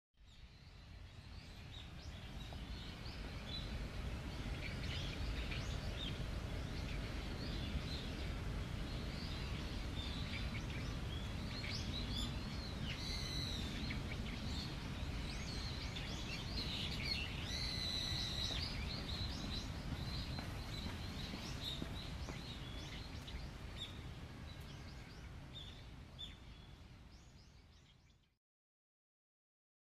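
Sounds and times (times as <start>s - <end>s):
birds chirping and calling: 9.1s - 24.1s.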